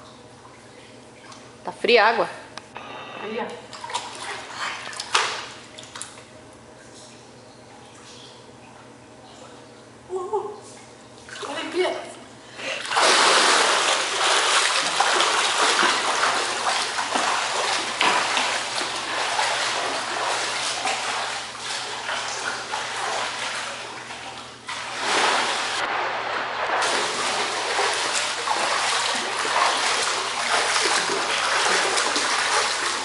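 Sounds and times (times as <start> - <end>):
swimmer splashing water: 12.8 - 33.0.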